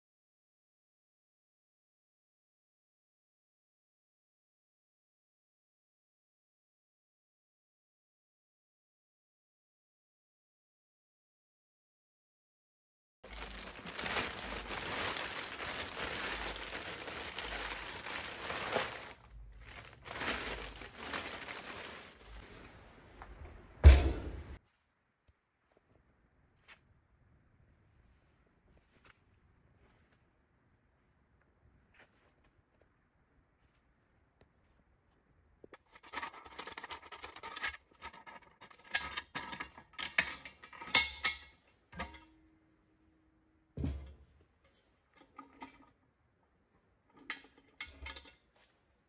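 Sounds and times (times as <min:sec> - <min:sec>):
plastic bag crinkling: 0:13.3 - 0:22.7
metal clamps clicking and clinking: 0:35.8 - 0:42.3, 0:47.1 - 0:48.5.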